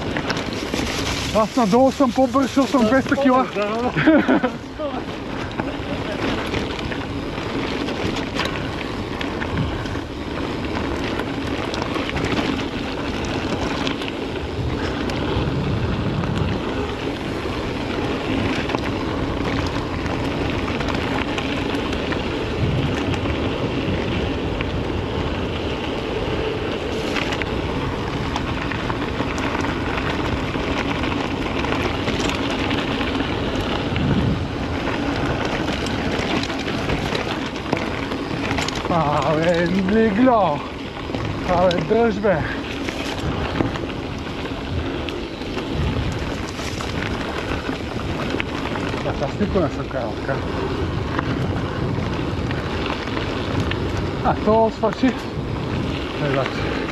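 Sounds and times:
bike rattling and clicking: 0.0s - 56.9s
bike tyres on dirt: 0.0s - 56.9s
wind on microphone: 0.0s - 56.9s.

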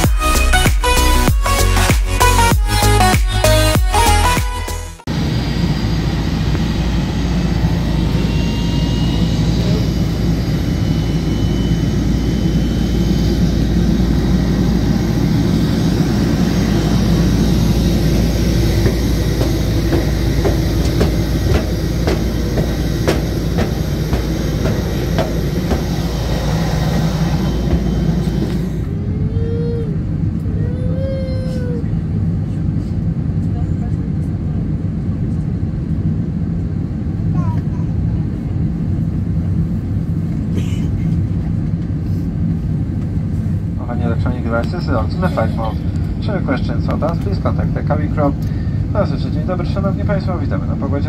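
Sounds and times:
loud low rumble: 5.0s - 30.5s
footsteps on metal stairs: 18.3s - 28.6s.

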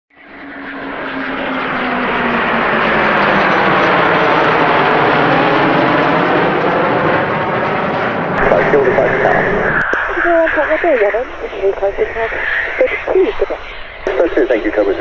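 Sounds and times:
jet roar: 0.2s - 15.0s.

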